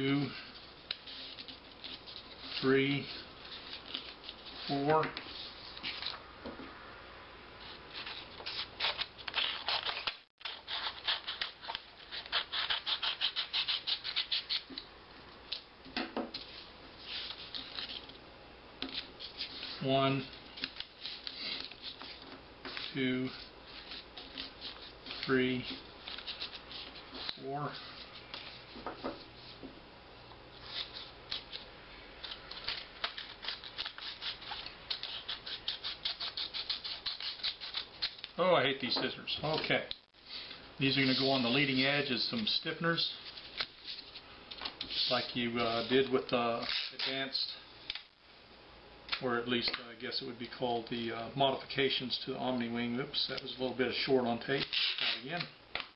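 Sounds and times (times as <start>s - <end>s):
scissors snipping paper: 32.2s - 38.4s.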